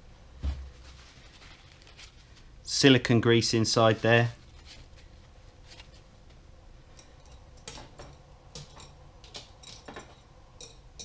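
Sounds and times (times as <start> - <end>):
small parts and tools clicking: 6.9 - 11.0.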